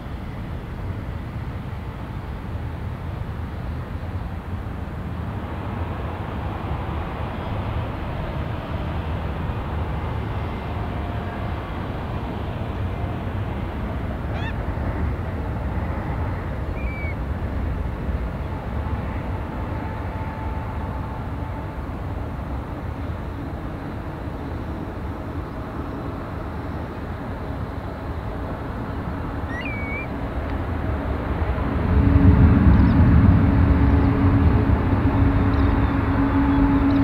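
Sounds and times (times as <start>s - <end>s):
jet engines rumbling: 0.0s - 37.0s
short bird chirps: 16.8s - 17.2s, 29.5s - 30.1s.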